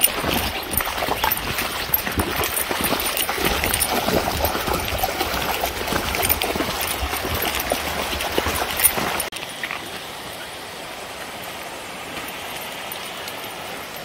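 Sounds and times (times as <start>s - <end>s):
shallow water splashing: 0.0s - 10.1s
flowing water rushing: 0.0s - 14.0s.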